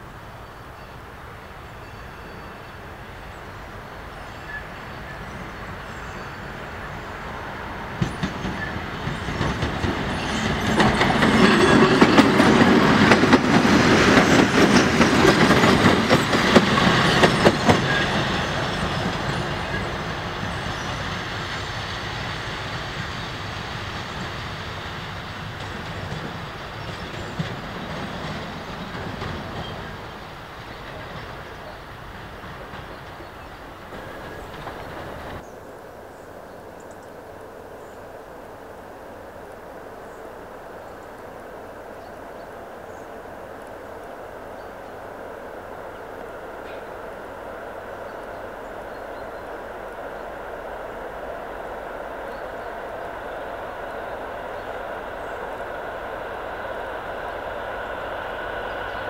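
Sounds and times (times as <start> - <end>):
diesel locomotive engine: 0.0 - 59.0
wheels clacking over rail joints: 7.6 - 35.4.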